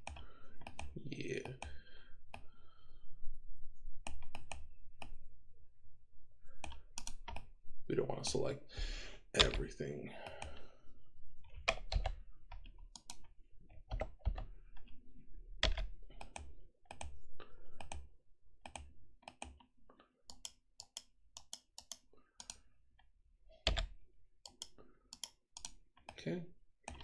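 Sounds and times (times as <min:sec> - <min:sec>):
keyboard and mouse clicks: 0:00.0 - 0:02.5, 0:04.0 - 0:05.2, 0:06.6 - 0:07.5, 0:09.4 - 0:10.6, 0:11.5 - 0:15.0, 0:15.6 - 0:19.7, 0:20.3 - 0:22.7, 0:23.5 - 0:27.0.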